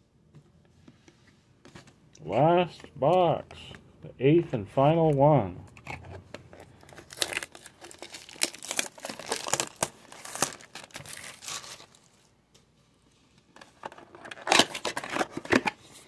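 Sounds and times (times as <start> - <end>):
packaging crinkling and crackling: 6.4 - 12.3, 13.7 - 15.8.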